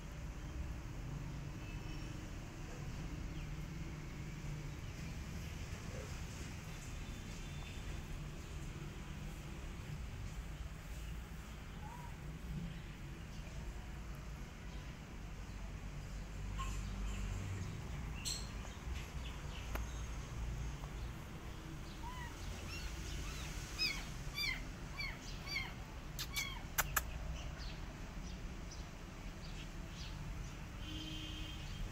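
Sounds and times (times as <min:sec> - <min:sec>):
small birds chirping: 0:14.6 - 0:31.9
sharp clicks: 0:26.2 - 0:27.1.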